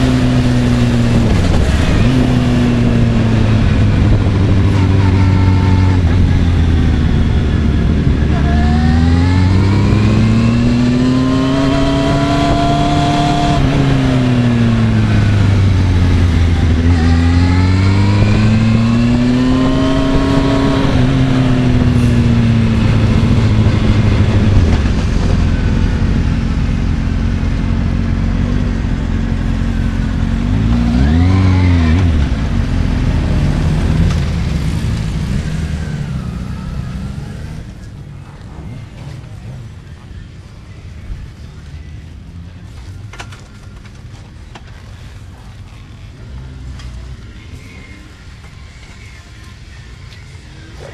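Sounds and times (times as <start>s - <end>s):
motorcycle engine revving: 0.0s - 40.2s.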